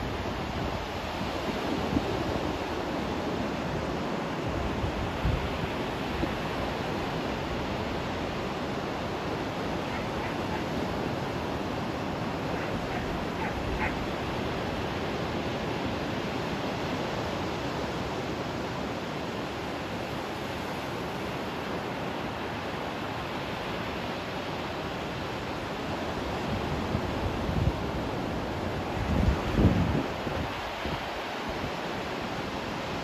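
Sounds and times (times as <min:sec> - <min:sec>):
wind buffeting microphone: 0:09.3 - 0:14.9, 0:28.8 - 0:31.8.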